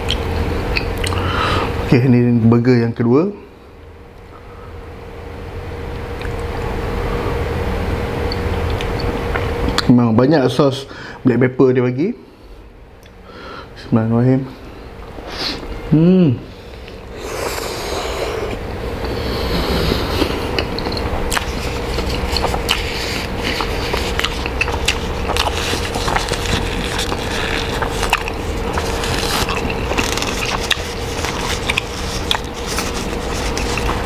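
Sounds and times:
person chewing food: 0:00.0 - 0:01.2, 0:08.2 - 0:09.9, 0:16.7 - 0:34.0
faint hum: 0:00.0 - 0:34.0.

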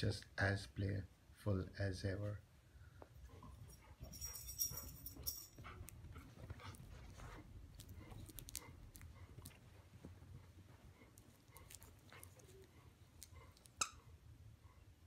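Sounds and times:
puppies chewing plush toy: 0:05.5 - 0:14.0.

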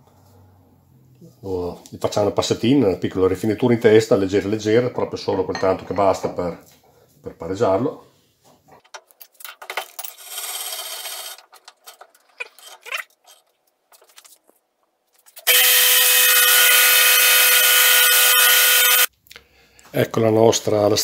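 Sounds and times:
milling machine whining: 0:15.5 - 0:19.1.

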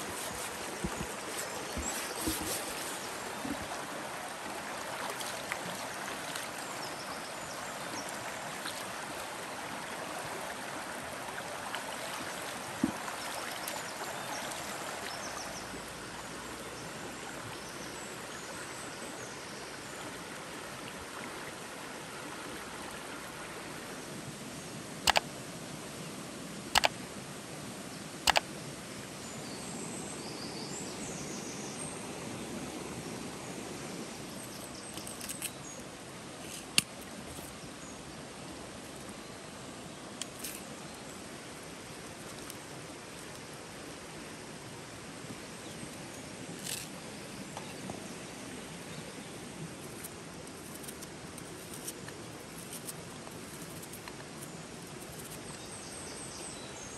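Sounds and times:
river flowing over stones: 0:00.0 - 0:56.9
sharp clicks: 0:26.8 - 0:27.0, 0:28.3 - 0:28.5.

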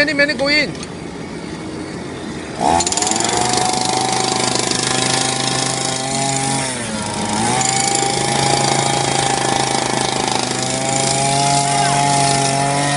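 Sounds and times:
breaker hammering: 0:02.6 - 0:12.9
gasoline jackhammer engine running: 0:02.6 - 0:12.9.

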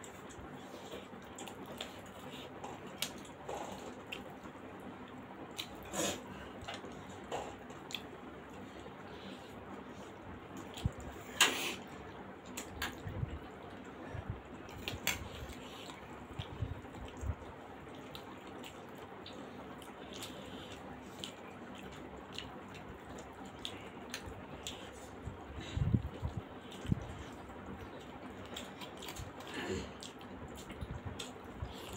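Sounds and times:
wet chewing and lip-smacking: 0:00.0 - 0:05.9, 0:06.6 - 0:11.2, 0:14.6 - 0:31.9.

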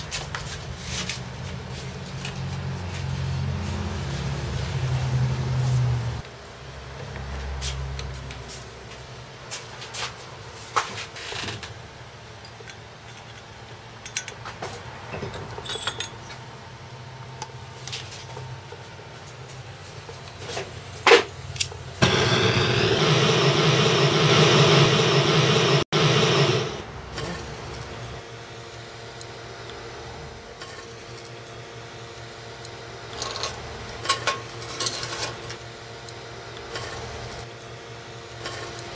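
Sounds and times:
small metal tools clinking: 0:15.3 - 0:16.4
gas torch roaring: 0:19.5 - 0:30.4.

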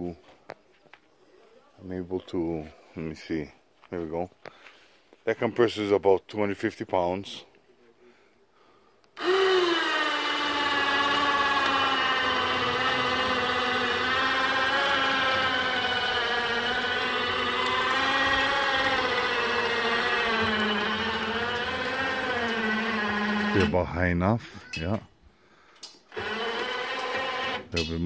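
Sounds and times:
electric winch motor whining: 0:09.2 - 0:23.8, 0:26.1 - 0:27.9.

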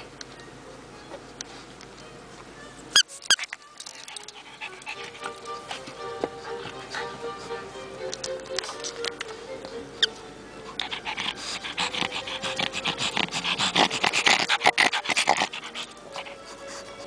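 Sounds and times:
dog panting rapidly: 0:03.4 - 0:17.0.

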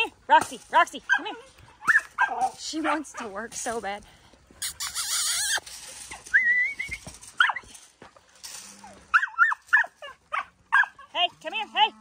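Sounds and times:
dog yipping: 0:01.1 - 0:03.3, 0:04.6 - 0:07.7, 0:09.1 - 0:11.1
dog whining: 0:04.6 - 0:07.7.

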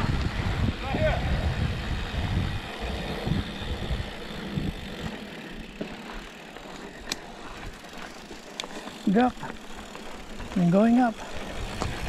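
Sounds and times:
wind rumbling on microphone: 0:00.0 - 0:05.8, 0:10.2 - 0:12.0
bike tyre and drivetrain rattle: 0:00.0 - 0:12.0.

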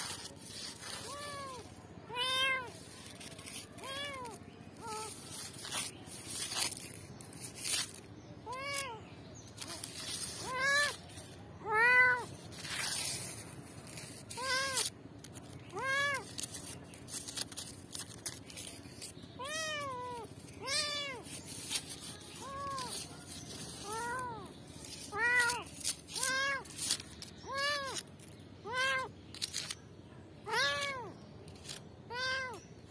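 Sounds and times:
kittens mewing: 0:30.4 - 0:31.1.

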